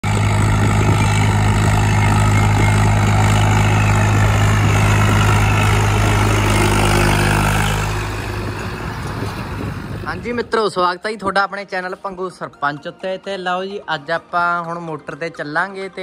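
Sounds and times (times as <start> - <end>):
tractor diesel engine running: 0.0 - 10.6.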